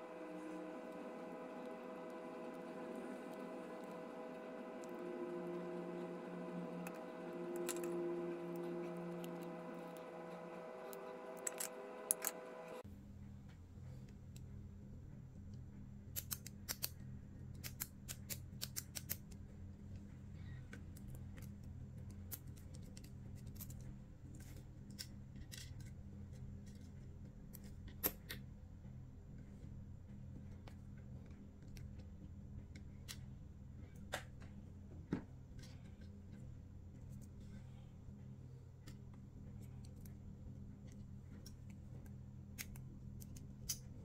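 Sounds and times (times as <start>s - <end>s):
steady low hum: 0.0s - 18.6s.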